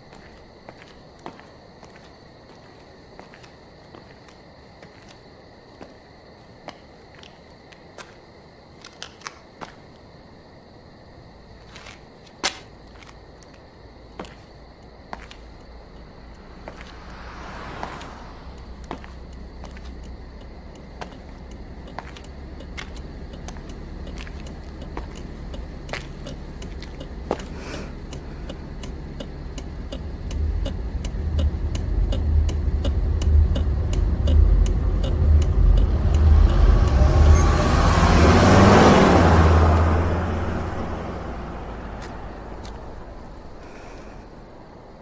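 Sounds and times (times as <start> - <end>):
car engine rumble: 12.9 - 45.0
faint ticks: 14.2 - 17.2, 18.0 - 37.0
tyre noise: 16.4 - 44.2.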